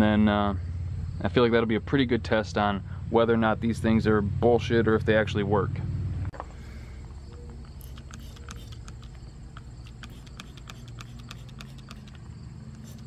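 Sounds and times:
steady low hum: 0.0 - 13.0
trigger sprayer clicks: 7.3 - 13.0.

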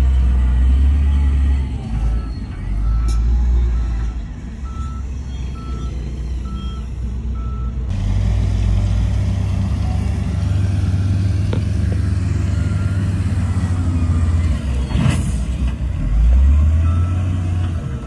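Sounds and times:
heavy diesel machinery running: 0.0 - 18.0
reversing alarm beeping: 1.2 - 7.8.

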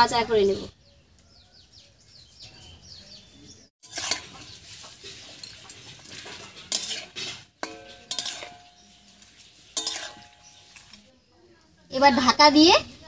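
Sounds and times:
spatula clanking against pan: 3.8 - 11.0
metal spatula scraping a wok: 3.8 - 11.1
metallic ring: 7.6 - 8.9.

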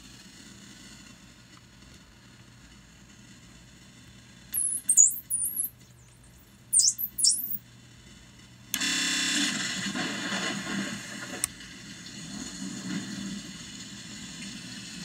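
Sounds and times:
high-pitched electronic squeals: 4.6 - 5.7, 6.3 - 7.6.

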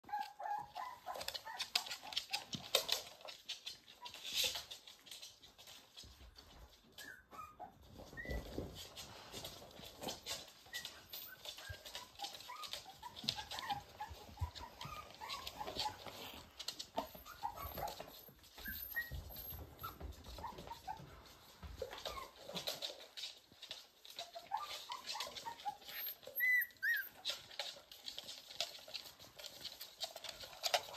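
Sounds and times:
puppies squeaking: 0.1 - 30.9
dog claws clicking on wood floor: 0.7 - 6.7, 8.4 - 30.9
puppy high squeals: 17.0 - 21.0, 24.4 - 27.3.

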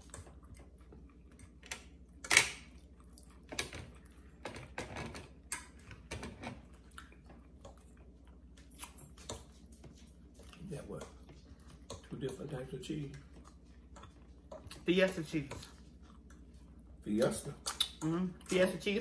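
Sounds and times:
eating clicks and smacks: 6.7 - 18.2.

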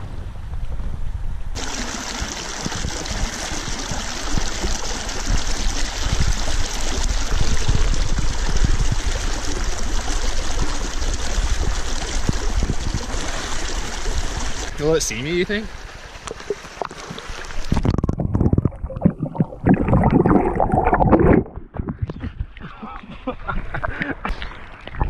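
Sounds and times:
creek water rushing over stones: 1.6 - 18.3.

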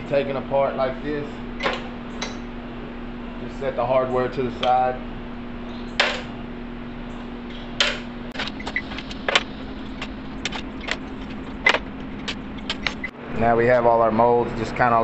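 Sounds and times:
steady low hum: 0.0 - 15.0
metal parts clinking: 8.4 - 13.1.

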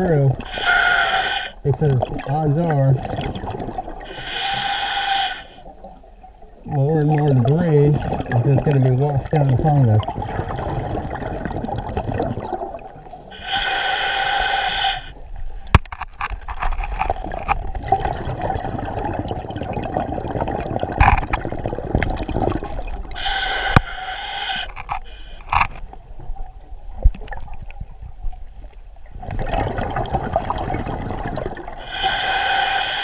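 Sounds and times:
underwater bubbling and crackling: 0.0 - 33.0
regulator hissing inhalation: 0.4 - 1.6, 4.1 - 5.6, 13.4 - 15.2, 23.2 - 25.5, 31.8 - 33.0.

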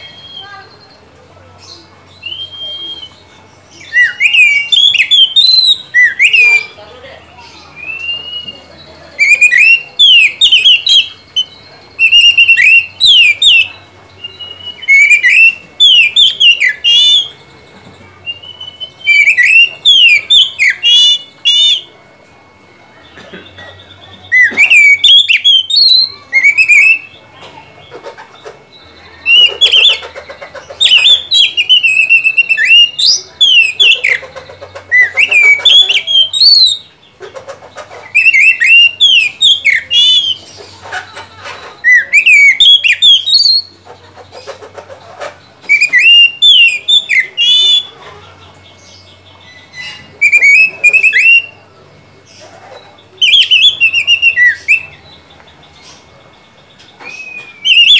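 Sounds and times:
bird singing whistled phrases: 0.0 - 17.6, 18.2 - 22.6, 23.7 - 27.3, 30.8 - 37.0, 38.0 - 40.6, 41.8 - 43.8, 45.6 - 48.0, 48.7 - 51.8, 52.8 - 55.3, 56.9 - 57.9.

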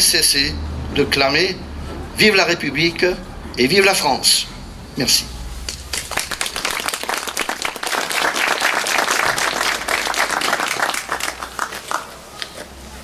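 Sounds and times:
crowd applauding: 5.8 - 12.4.

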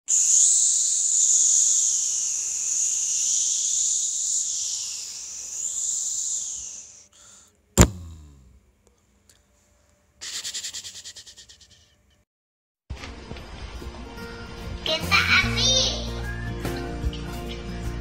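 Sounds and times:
high-pitched hiss: 0.0 - 8.5
sharp hit with low boom: 7.8 - 8.6.

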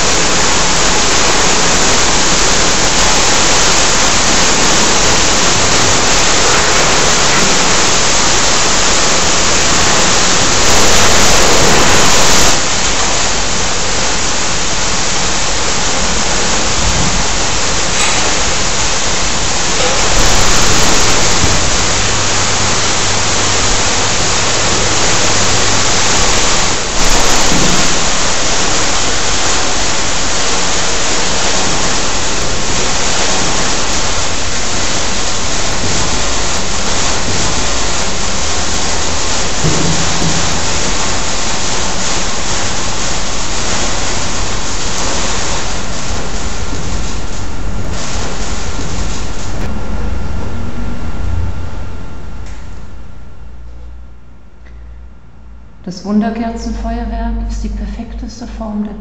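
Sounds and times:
sparklers fizzing: 0.0 - 15.8, 17.7 - 49.6.

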